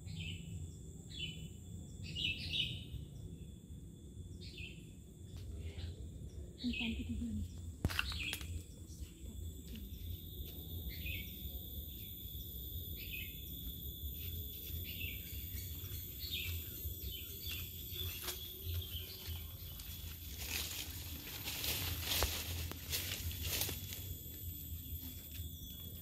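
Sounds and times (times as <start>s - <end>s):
high insect drone: 0.0s - 26.0s
bird chirps: 6.3s - 21.1s.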